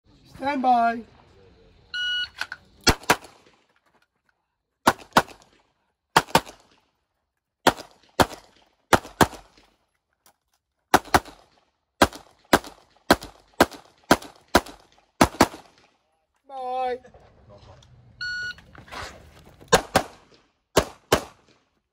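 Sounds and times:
pistol shots: 2.8 - 3.6, 4.8 - 5.6, 6.2 - 6.8, 7.6 - 9.7, 10.9 - 16.0, 19.7 - 21.7.

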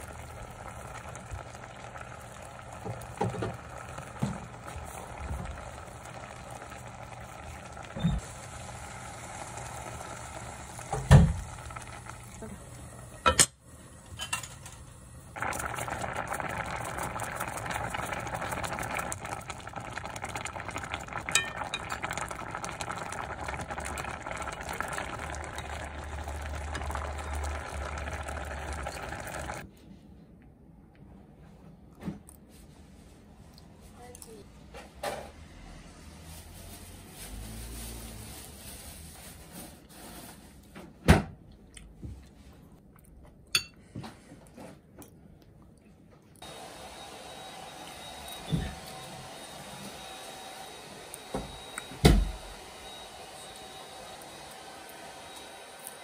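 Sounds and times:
food hissing on a stove: 0.0 - 13.2, 15.4 - 29.6, 36.0 - 40.4.

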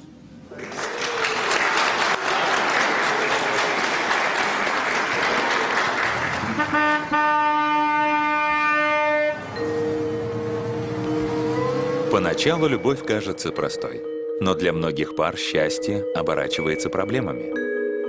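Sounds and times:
people applauding: 0.5 - 7.2
music with held chord: 7.0 - 18.0.

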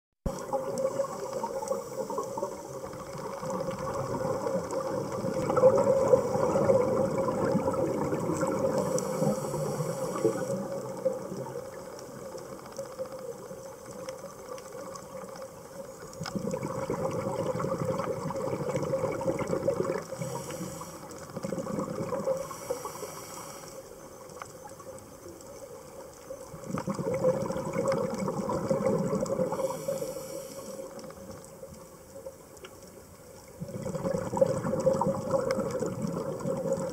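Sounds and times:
scuba regulator exhaled bubbles: 0.3 - 11.9, 16.2 - 23.7, 26.4 - 31.4, 33.6 - 36.9
scuba regulator inhale: 8.6 - 10.9, 20.0 - 21.4, 22.2 - 24.1, 29.4 - 31.2.

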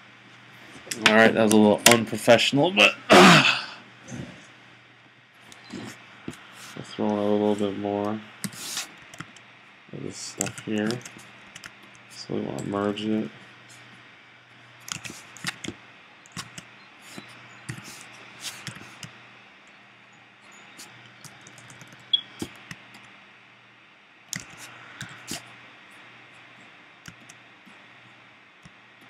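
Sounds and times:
faint low hum: 0.0 - 29.0.

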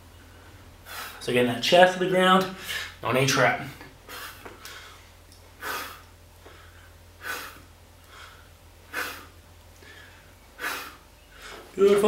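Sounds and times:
faint low hum: 0.0 - 12.0
man breathing out sharply: 5.6 - 11.7.

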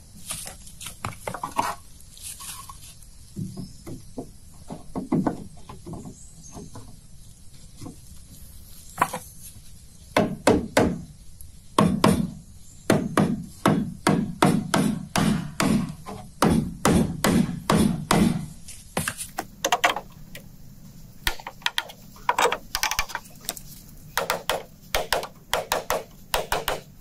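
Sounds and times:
hammer striking wood: 10.2 - 11.0, 11.8 - 20.0, 24.2 - 26.9.

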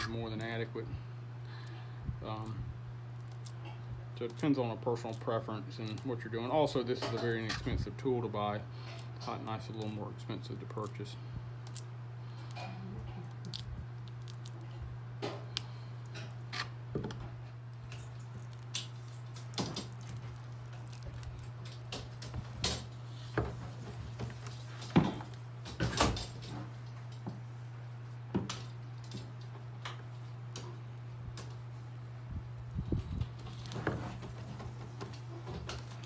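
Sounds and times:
steady low hum: 0.0 - 36.0
wax cappings scraped off honeycomb: 1.6 - 16.8, 17.6 - 25.4.

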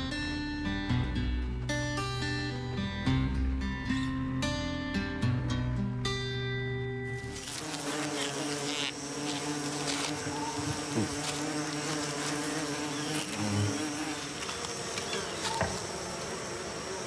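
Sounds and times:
bees buzzing: 7.1 - 17.0.

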